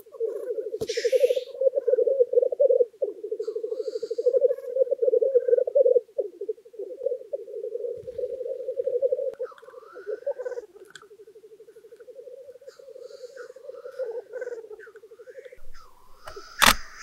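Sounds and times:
grouse bubbling cooing warble: 0.0 - 17.0.

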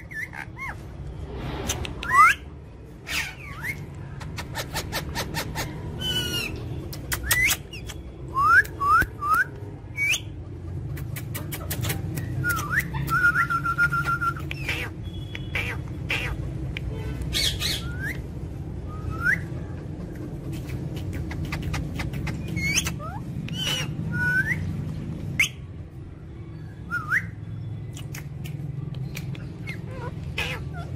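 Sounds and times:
parakeets chirping and squawking: 0.0 - 8.1, 14.5 - 25.6, 29.2 - 30.9
sharp clicks: 27.9 - 29.6.

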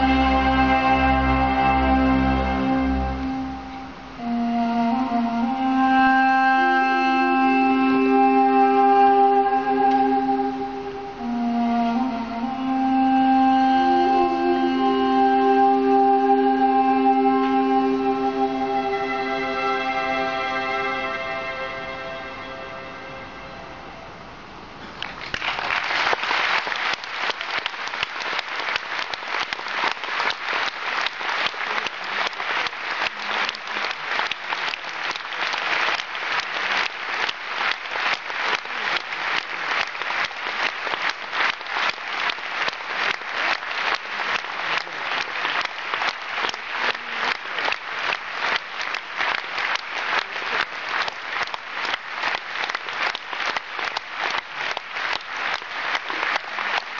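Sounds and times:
audience clapping in unison: 24.9 - 56.9.

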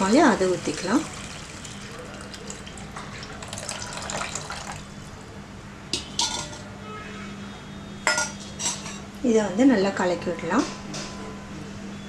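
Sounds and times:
liquid pouring into pan: 0.6 - 4.9
utensils clinking against pan: 6.0 - 6.7, 8.1 - 9.1.

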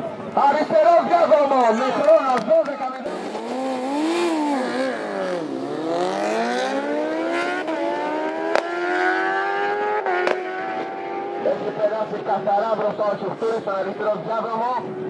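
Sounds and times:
motorcycles accelerating hard: 3.0 - 12.9.

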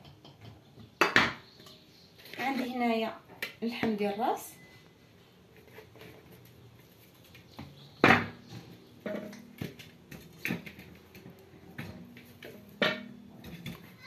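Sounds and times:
meat knocking in metal pot: 7.6 - 14.0.

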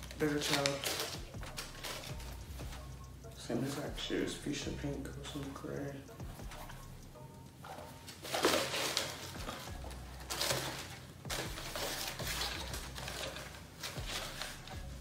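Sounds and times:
sneakers rustling and crinkling: 7.6 - 15.0.

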